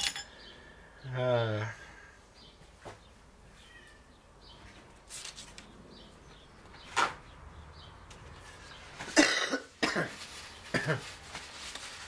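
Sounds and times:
paper towel ripping: 10.1 - 12.0.

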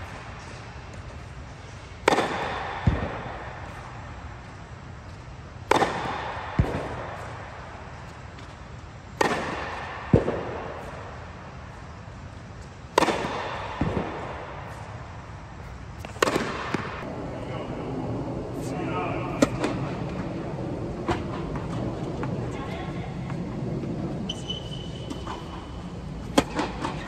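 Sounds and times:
racket hitting tennis ball: 0.0 - 4.0, 5.6 - 11.2, 12.9 - 17.1, 19.3 - 27.0
tennis ball landing thud: 2.0 - 3.5, 5.6 - 7.4, 9.2 - 11.0, 12.9 - 14.8, 16.0 - 17.1, 26.3 - 26.9.

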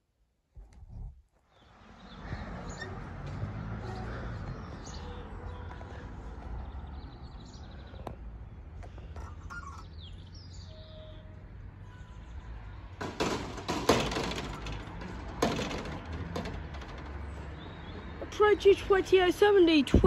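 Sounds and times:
birds chirping: 1.5 - 13.0, 14.0 - 19.7
gate rattling and clanking: 12.9 - 18.2.

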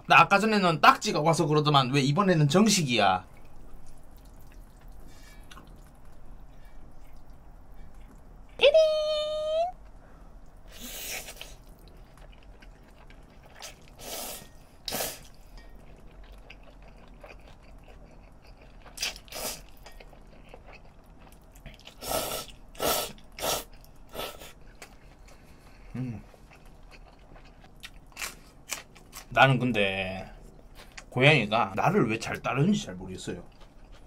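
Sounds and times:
chewing: 3.2 - 8.6, 9.8 - 29.3, 30.3 - 31.1, 33.3 - 34.0
person slurping noodles: 13.6 - 15.3, 21.9 - 24.6.

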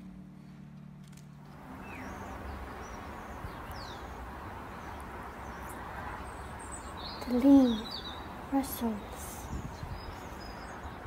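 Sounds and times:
outdoor background noise: 0.0 - 11.0
bird chirps: 1.8 - 8.4.

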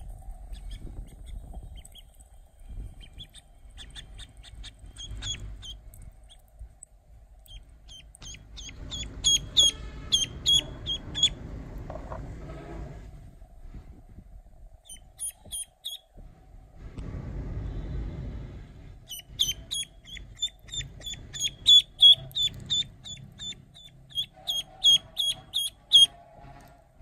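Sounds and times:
duckling peeping: 0.5 - 2.2, 2.9 - 6.5, 7.4 - 11.4, 14.8 - 16.1, 19.0 - 26.3.

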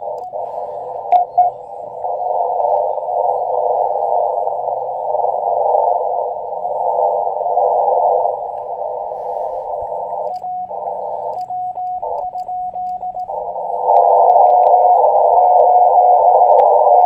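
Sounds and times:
radio receiver hiss: 0.0 - 17.0
morse code tone: 1.1 - 1.7, 9.2 - 16.0.

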